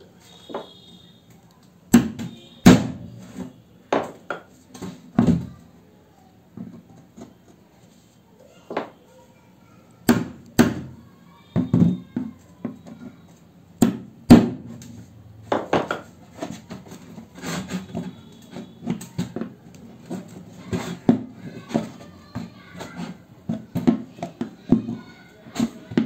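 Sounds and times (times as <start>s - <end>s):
knocks and scrapes on plastic can: 15.5s - 26.0s.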